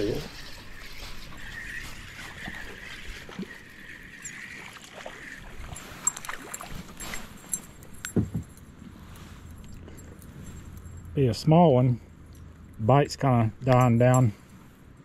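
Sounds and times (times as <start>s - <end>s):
fishing reel whirring: 0.0s - 7.7s
water splashing: 0.0s - 7.8s
dull knocks: 8.1s - 8.5s.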